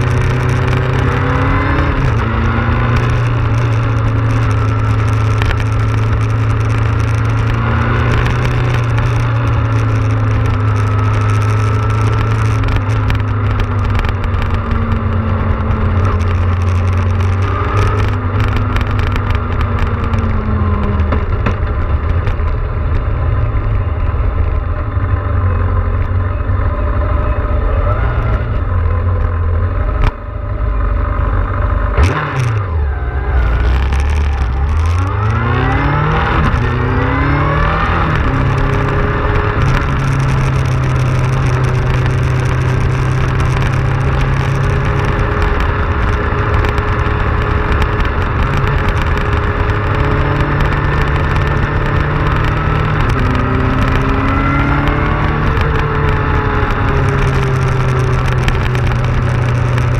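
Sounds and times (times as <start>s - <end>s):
motorcycle engine: 0.0s - 59.9s
wind and road noise: 0.0s - 59.9s.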